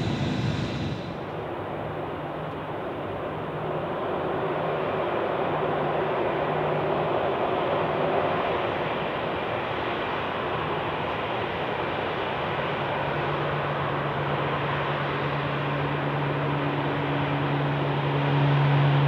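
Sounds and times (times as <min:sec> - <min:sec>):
distant jet engine rushing: 0:00.0 - 0:01.6.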